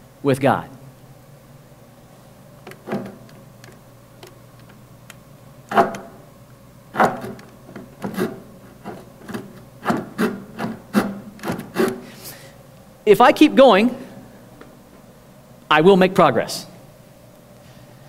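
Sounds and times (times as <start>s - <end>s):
hand saw rasping on wood: 5.7s - 6.2s, 7.0s - 12.1s.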